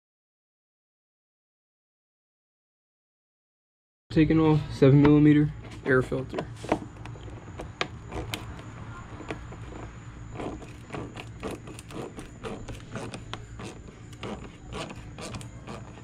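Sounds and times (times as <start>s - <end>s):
steady low hum: 4.1s - 16.0s
screwdriver clicks and scrapes: 5.7s - 16.0s.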